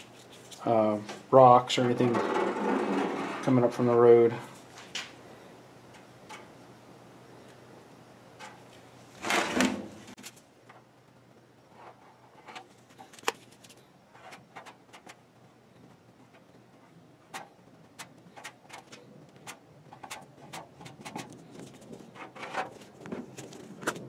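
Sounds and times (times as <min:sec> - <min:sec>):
plastic spreader scraping filler: 0:01.9 - 0:03.8.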